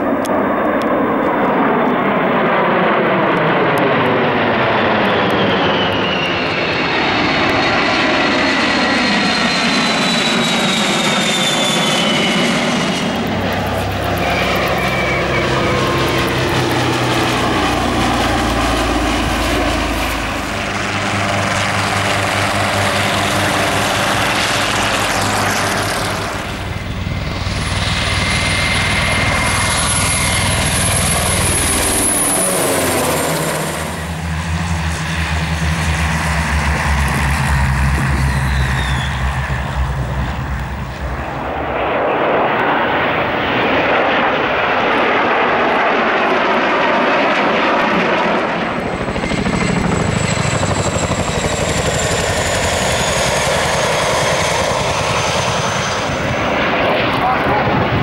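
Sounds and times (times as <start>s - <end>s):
aircraft engines taking off: 0.0s - 58.0s
helicopter turbine whine: 0.0s - 58.0s
deep pulsing rotor beat: 12.7s - 41.5s.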